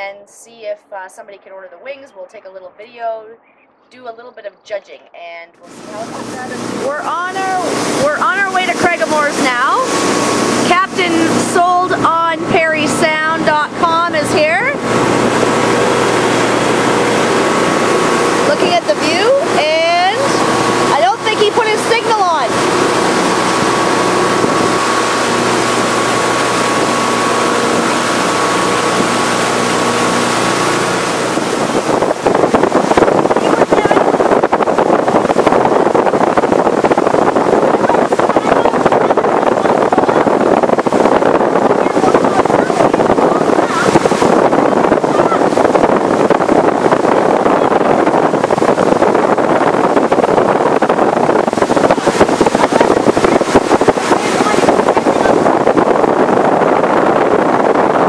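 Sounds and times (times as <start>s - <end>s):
wind buffeting microphone: 0.0s - 58.0s
motorboat engine running: 5.6s - 58.0s
rushing water: 5.6s - 58.0s.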